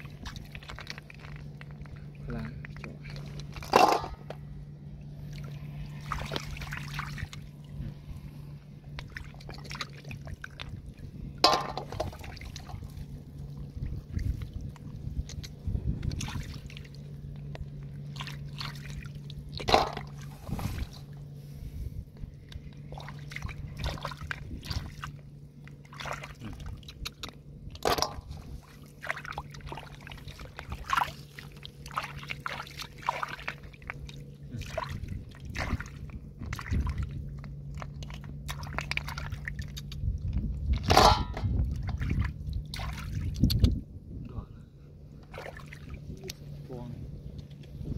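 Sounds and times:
steady low hum: 0.0 - 47.9
snails dropping into metal basin: 11.4 - 12.1, 19.6 - 20.1
hands splashing in water: 41.8 - 43.7.

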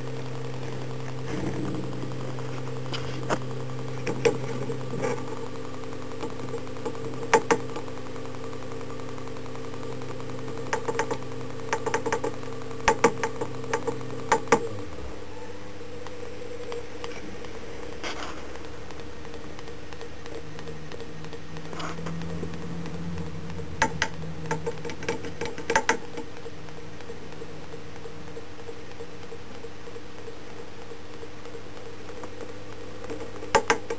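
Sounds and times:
electric motor humming: 0.0 - 29.6
sharp clicks: 10.0 - 15.0, 16.0 - 33.9.

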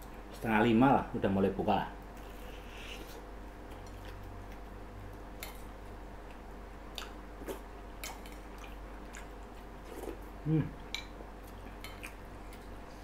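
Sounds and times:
person chewing: 5.4 - 12.8.

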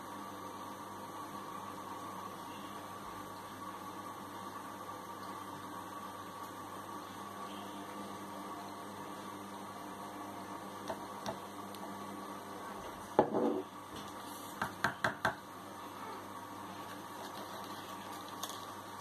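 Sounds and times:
electrical hum: 0.0 - 19.0
knock on countertop: 13.2 - 13.6, 14.6 - 15.4.

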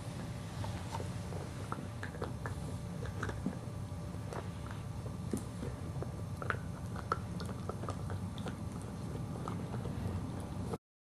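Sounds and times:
dog chewing on a bone: 0.2 - 10.8
teeth crunching on bone: 1.7 - 10.7.

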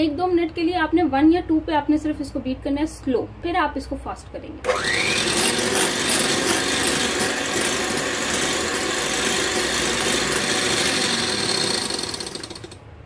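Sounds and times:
electric hand mixer whisking cream: 4.7 - 12.8.

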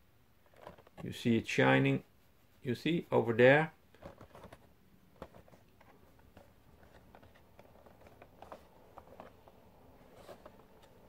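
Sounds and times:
cardboard box rustling in hands: 0.4 - 1.2, 3.9 - 11.0.

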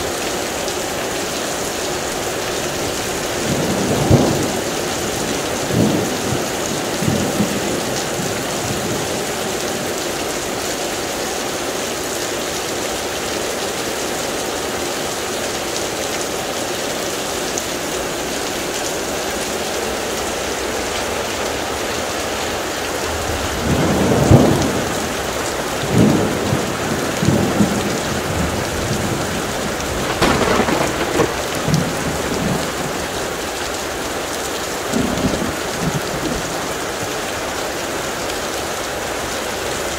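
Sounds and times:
heavy rain: 0.0 - 39.9
thunder rumbling: 25.8 - 33.4.

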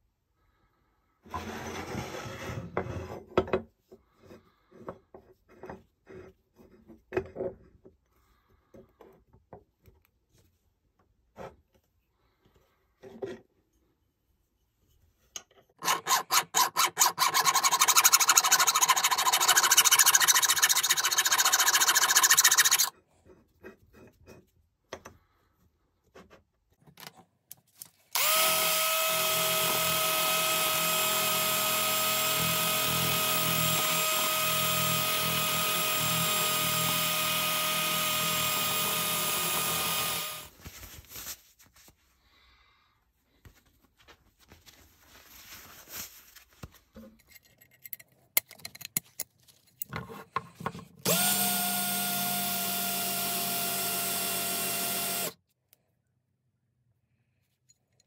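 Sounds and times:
power tool motor whining: 15.8 - 22.9, 28.2 - 40.5, 51.0 - 55.4.

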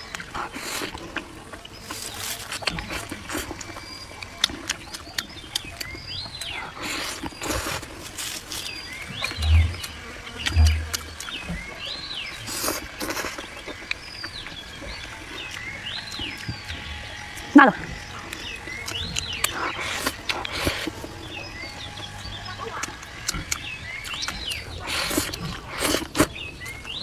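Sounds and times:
slurping and chewing: 0.0 - 27.0
low thumps: 9.2 - 11.3.

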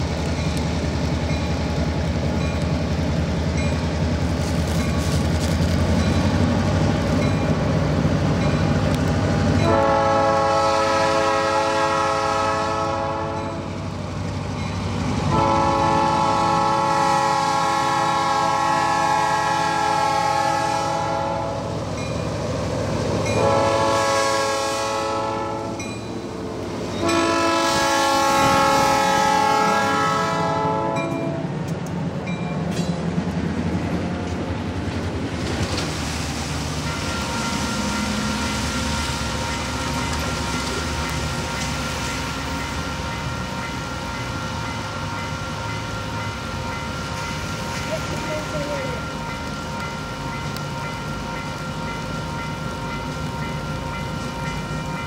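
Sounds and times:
diesel locomotive engine running: 0.0 - 55.0
train air horn blasts: 9.6 - 13.7, 15.3 - 21.7, 23.4 - 25.8, 27.0 - 31.4.

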